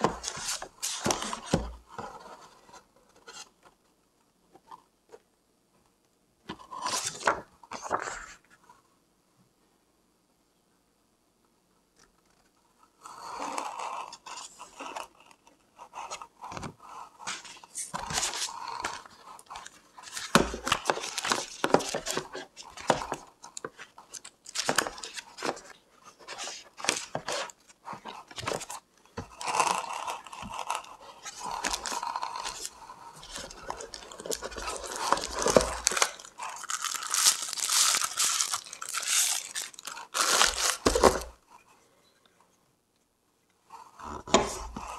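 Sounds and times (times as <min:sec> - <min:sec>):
paper rustling and crinkling: 0:16.0 - 0:41.4.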